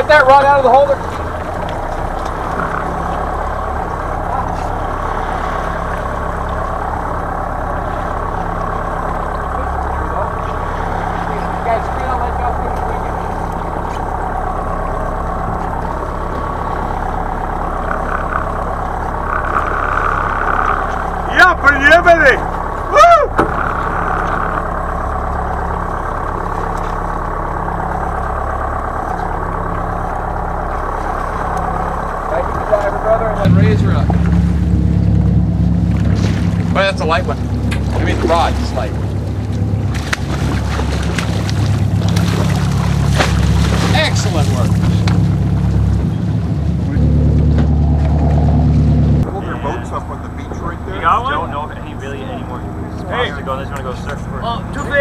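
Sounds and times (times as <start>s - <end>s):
wind and sea rushing: 0.0s - 52.9s
boat engine droning: 0.0s - 55.0s
wind and water rushing: 32.8s - 49.6s.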